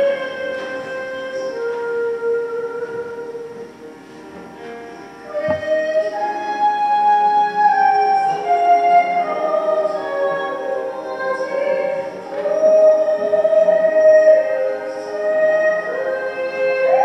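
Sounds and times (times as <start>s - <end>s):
slow sacred music: 0.0s - 17.0s.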